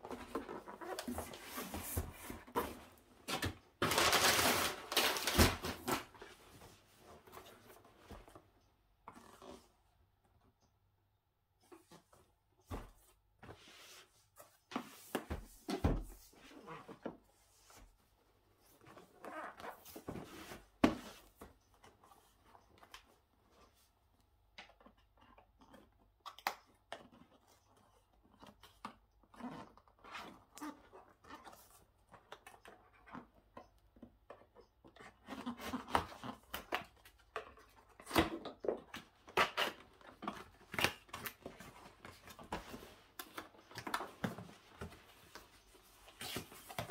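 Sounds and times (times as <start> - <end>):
packaging rustling: 3.3 - 6.3.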